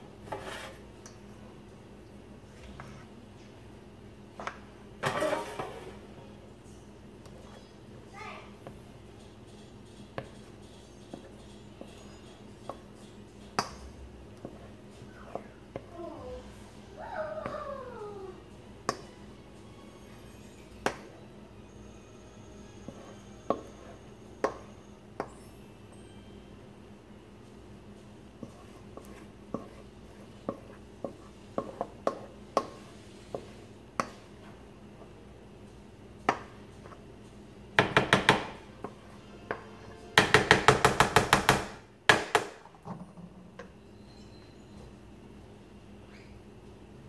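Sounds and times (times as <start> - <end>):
spatula scraping metal pan: 0.2 - 0.8, 5.0 - 6.0.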